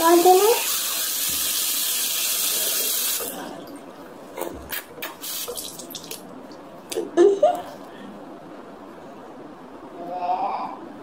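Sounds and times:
tap water running into sink: 0:00.0 - 0:03.4, 0:05.0 - 0:06.2
water splashes and drips: 0:05.0 - 0:06.3.

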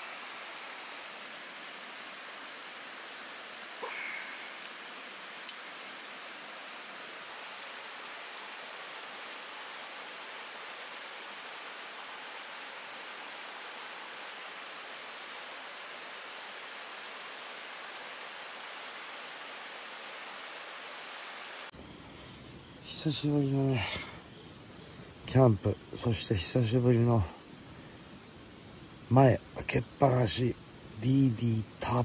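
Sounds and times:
wood fire crackling: 0:00.0 - 0:21.2
river water rushing: 0:00.0 - 0:21.7.

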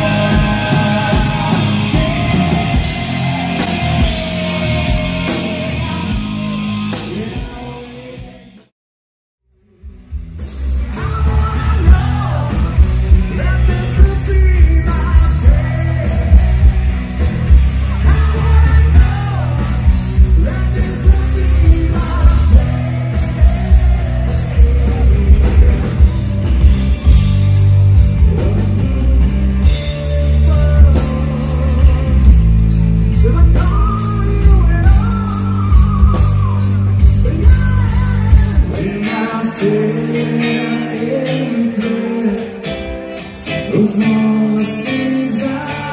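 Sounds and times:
man singing: 0:00.0 - 0:08.7, 0:10.8 - 0:27.0, 0:28.1 - 0:45.9
rock band playing: 0:00.0 - 0:08.7, 0:09.6 - 0:45.9.

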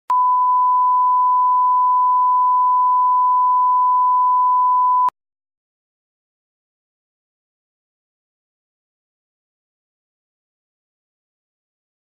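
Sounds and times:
steady test tone beep: 0:00.1 - 0:05.1.

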